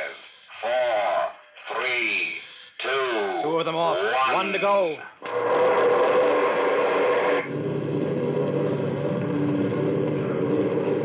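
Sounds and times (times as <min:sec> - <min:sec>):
low engine drone: 0:05.2 - 0:11.0
rocket roar: 0:05.2 - 0:11.0.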